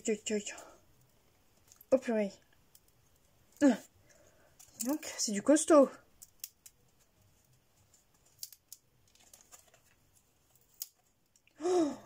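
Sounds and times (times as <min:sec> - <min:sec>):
plywood pieces clicking: 0:08.3 - 0:08.8
wood snapping: 0:10.7 - 0:11.0.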